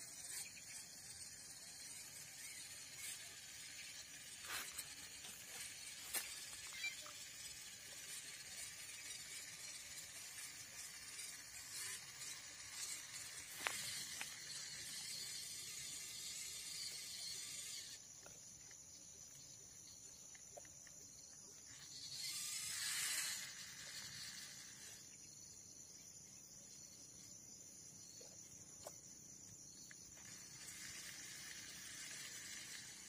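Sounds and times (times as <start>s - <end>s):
insects buzzing: 0.0s - 33.0s
hiss: 30.2s - 33.0s.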